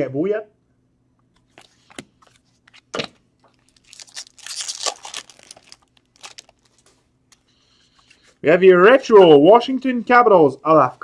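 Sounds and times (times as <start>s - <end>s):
foil wrapper crinkling and tearing: 3.4s - 7.0s.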